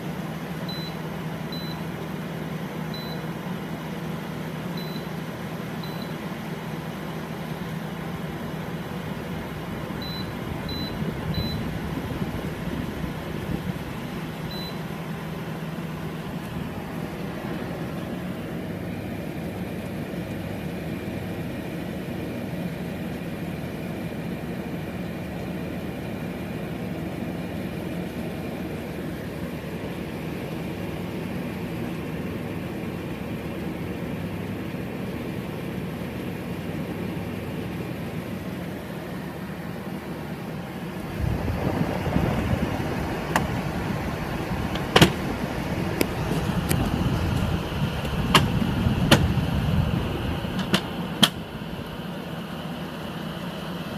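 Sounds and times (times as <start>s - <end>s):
air conditioner fan and compressor hum: 0.0s - 53.9s
low rumble: 41.0s - 50.7s.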